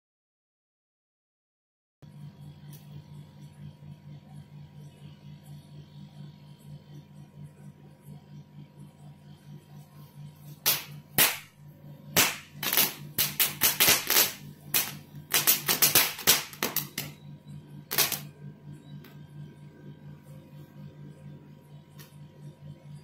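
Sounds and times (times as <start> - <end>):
ground firework popping and cracking: 12.2 - 17.1.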